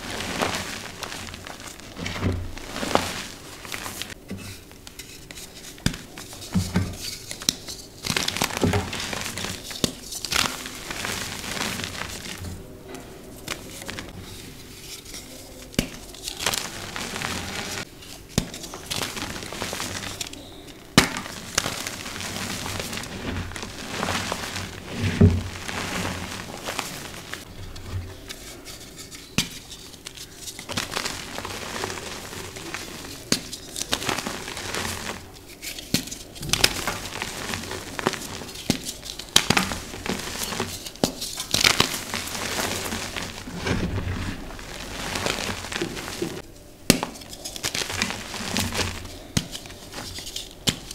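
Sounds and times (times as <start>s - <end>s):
chalk crunching and crackling: 0.0s - 50.9s
chalk chunks snapping: 44.7s - 50.9s.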